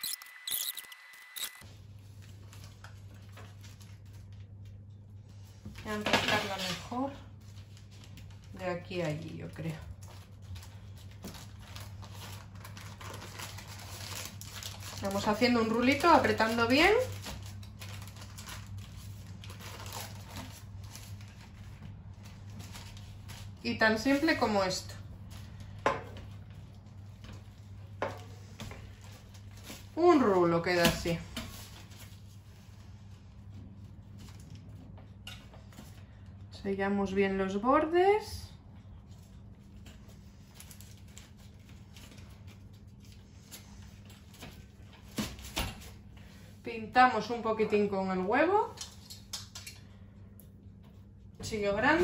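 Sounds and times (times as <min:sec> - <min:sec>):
low steady hum: 0:00.0 - 0:52.0
baking paper crinkling: 0:01.6 - 0:34.9, 0:38.8 - 0:46.5.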